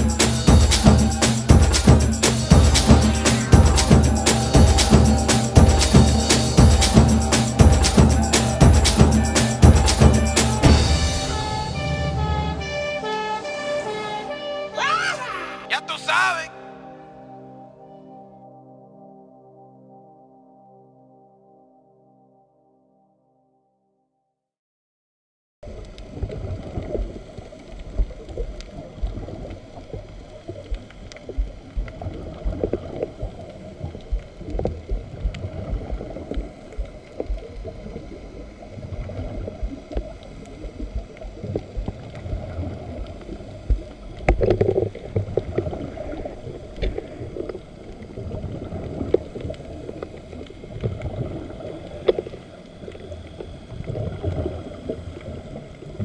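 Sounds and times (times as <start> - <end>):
muffled underwater rumble and gurgle: 0.0 - 12.7, 25.6 - 56.0.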